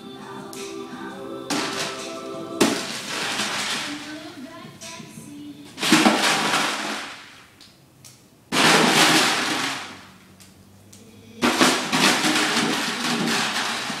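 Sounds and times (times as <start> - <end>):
beans rattling in plastic jug: 2.6 - 4.2, 11.4 - 14.0.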